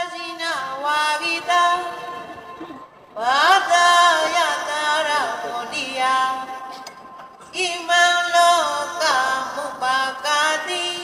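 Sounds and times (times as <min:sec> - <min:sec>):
person chanting: 0:03.2 - 0:06.6.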